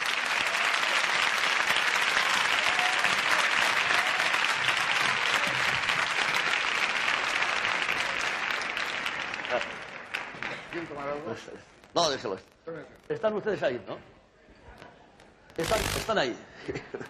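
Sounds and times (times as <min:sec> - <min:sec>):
studio audience applauding: 0:00.0 - 0:11.6.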